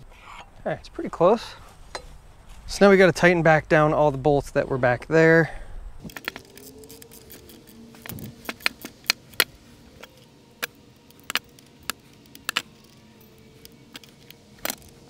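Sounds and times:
wrench clicking on bolts: 6.1s - 15.0s.

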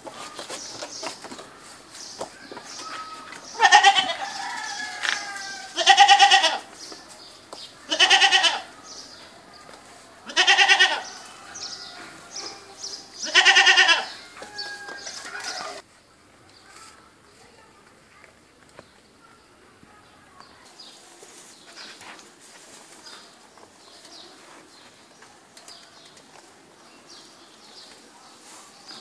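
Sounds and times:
goat bleating: 2.8s - 4.3s, 4.9s - 6.7s, 7.9s - 8.7s, 10.2s - 11.2s, 13.2s - 14.2s.

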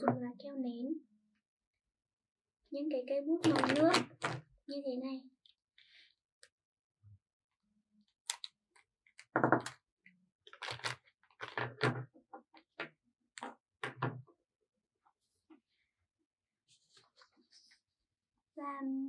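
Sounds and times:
marker pens put down on table: 9.2s - 9.8s, 10.6s - 12.1s, 12.8s - 14.2s.

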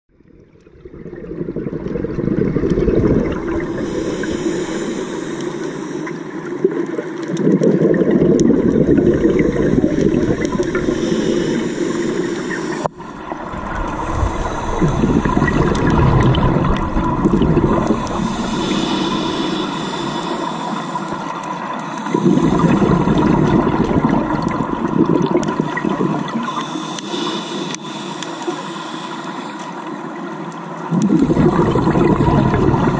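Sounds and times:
exhaled bubbles gurgling: 0.1s - 32.9s
scuba regulator breathing underwater: 1.4s - 6.7s, 7.4s - 30.0s.

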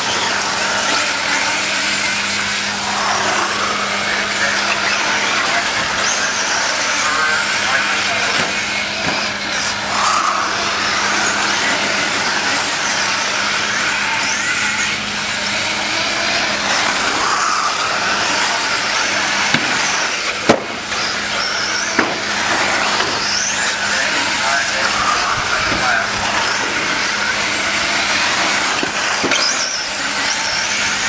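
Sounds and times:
rc car motors whining: 0.0s - 31.0s.

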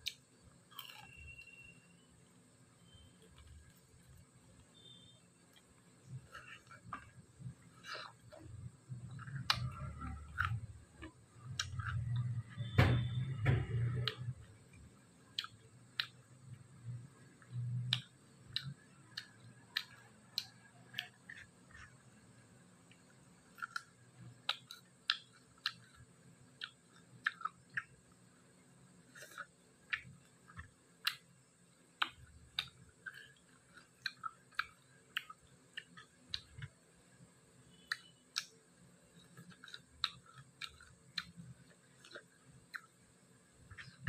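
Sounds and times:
person chewing and crunching: 0.0s - 1.5s, 4.8s - 12.8s, 15.3s - 16.3s, 17.4s - 22.2s, 23.0s - 28.2s, 29.0s - 31.3s, 32.0s - 36.8s, 39.2s - 43.0s.

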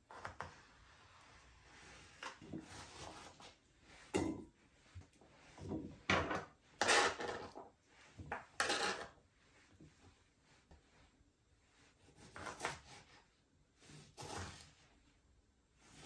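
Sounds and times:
knife scraping on cutting board: 6.8s - 7.6s, 8.3s - 9.2s, 12.0s - 13.1s, 13.8s - 14.8s.

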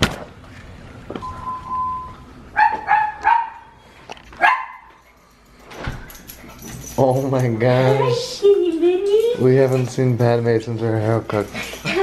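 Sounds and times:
small dog barking: 2.6s - 3.7s, 4.4s - 4.9s.

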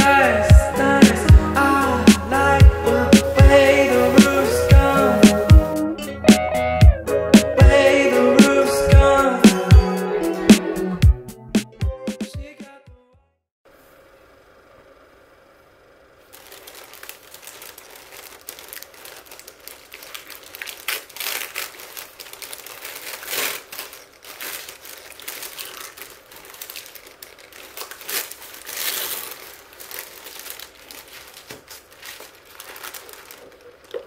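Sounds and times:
tissue paper rustling: 16.2s - 34.0s.

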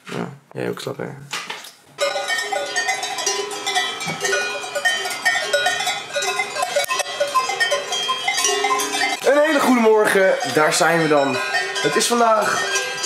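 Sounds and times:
cowbells clanking: 2.0s - 13.0s.

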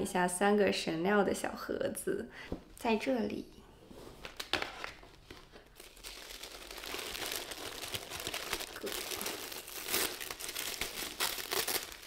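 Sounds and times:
tissue paper rustling: 5.1s - 12.0s.

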